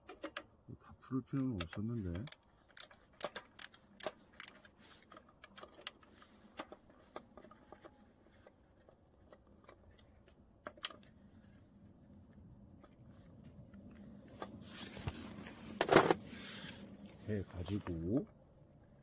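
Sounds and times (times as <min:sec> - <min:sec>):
small metallic clicks and taps: 0:01.3 - 0:11.2.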